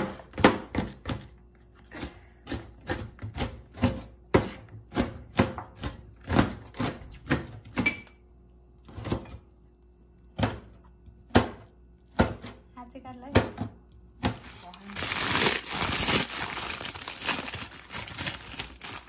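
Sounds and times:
knife chopping on cutting board: 0.0 - 7.9, 10.4 - 12.6.

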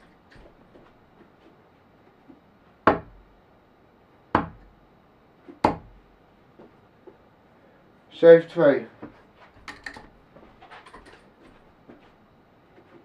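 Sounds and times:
darts hitting dartboard: 2.9 - 3.2, 4.4 - 4.7.

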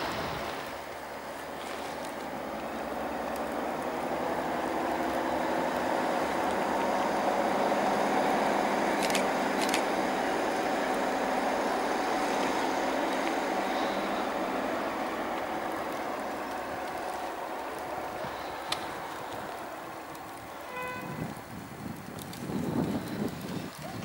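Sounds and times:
train running hum: 0.0 - 24.0
sharp clicks: 8.9 - 9.9.

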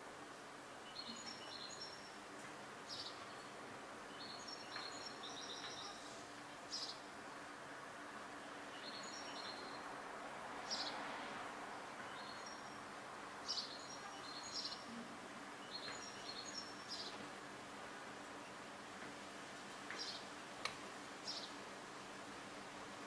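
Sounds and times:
faint steady hiss: 0.0 - 23.0
birds chirping: 4.1 - 6.1, 15.5 - 17.2.

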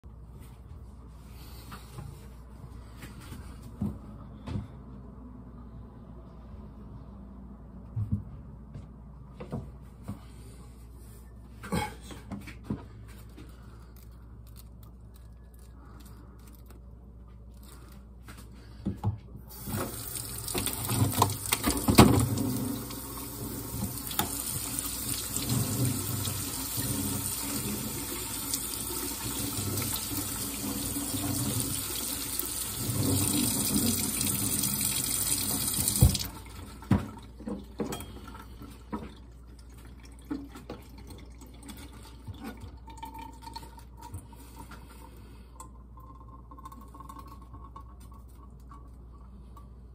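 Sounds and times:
tap water splashing on cabbage: 19.6 - 37.6.

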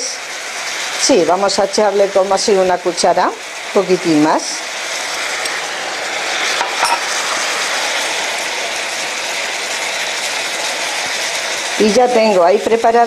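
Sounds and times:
food sizzling in a frying pan: 0.0 - 13.0.

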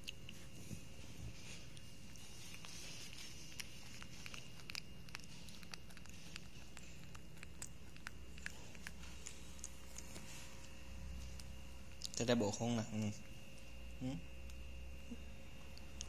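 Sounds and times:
baby monkey sucking fingers: 1.5 - 12.2.

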